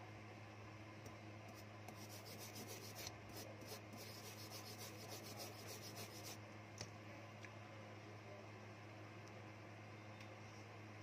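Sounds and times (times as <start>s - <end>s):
low electrical hum: 0.0s - 11.0s
brush scrubbing circuit board: 1.5s - 6.4s.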